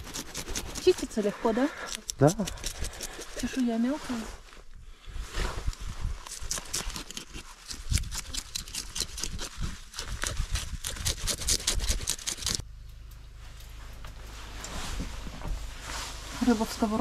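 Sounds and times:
knife scraping fish scales: 0.0 - 3.7, 6.3 - 12.6
steady low hum: 12.0 - 17.0.

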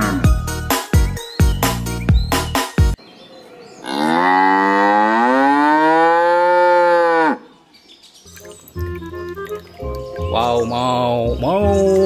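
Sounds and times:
music: 0.0 - 3.0, 8.3 - 12.0
cow mooing: 3.8 - 7.5.

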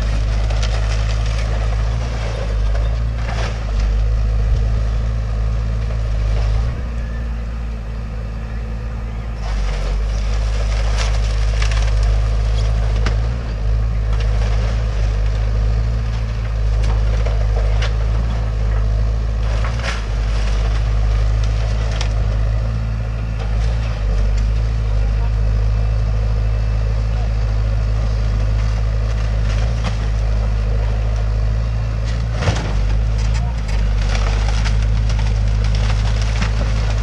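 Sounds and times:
timber splintering and cracking: 0.0 - 4.1, 9.5 - 13.4, 32.2 - 37.0
excavator diesel engine running: 0.0 - 37.0.

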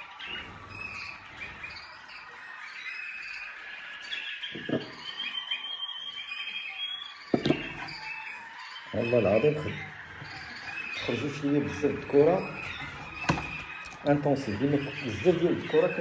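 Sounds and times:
canaries chirping: 0.0 - 16.0.

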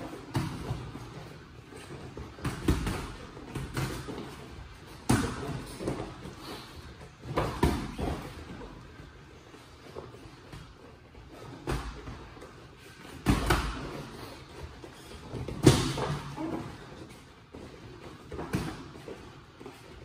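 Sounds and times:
boxing gloves thudding: 13.1 - 14.1.

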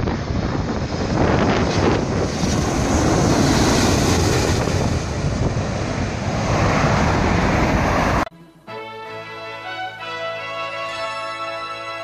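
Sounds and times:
jet engine rumble: 0.0 - 8.3
wind buffeting microphone: 0.0 - 8.3.

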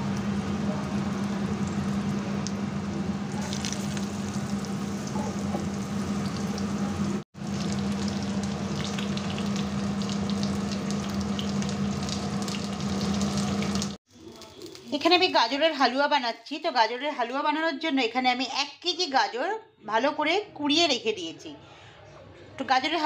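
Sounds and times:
fish frying in hot oil: 0.0 - 15.1.

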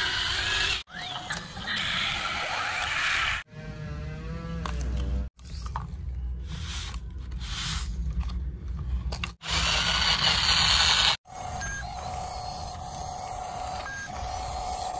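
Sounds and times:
small motor whining: 9.4 - 14.9.

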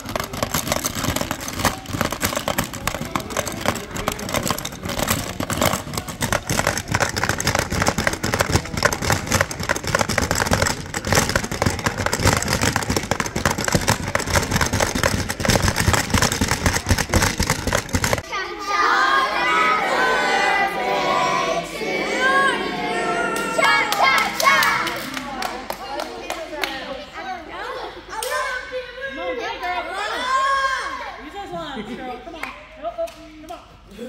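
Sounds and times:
plastic game levers clacking: 0.0 - 18.2
plastic marbles rattling: 0.0 - 18.2.

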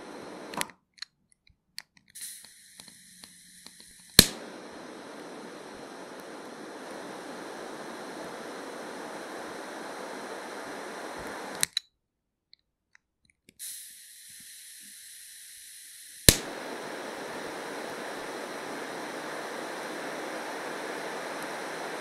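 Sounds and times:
gas hissing thinly: 0.0 - 0.6, 2.2 - 11.6, 13.6 - 22.0
jet flame hissing: 0.0 - 0.7, 2.2 - 11.7, 13.6 - 22.0
lighter clicks: 0.0 - 0.7, 2.2 - 11.8, 13.6 - 22.0
sharp ignition click: 2.2 - 7.0, 16.2 - 16.7.

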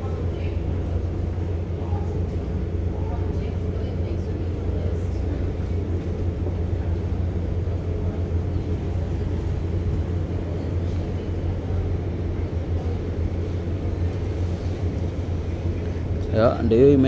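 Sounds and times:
ship machinery low rumble: 0.0 - 17.0.

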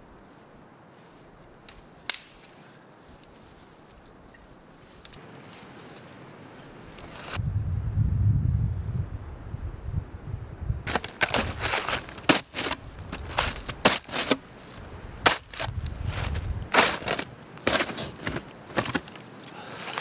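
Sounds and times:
shovel crunching into snow: 7.0 - 7.4, 10.9 - 20.0
wind rumble on microphone: 7.3 - 11.8, 14.8 - 16.8.

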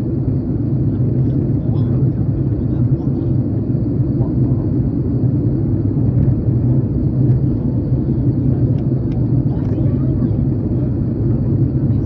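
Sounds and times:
airliner cabin engine drone: 0.0 - 12.0.

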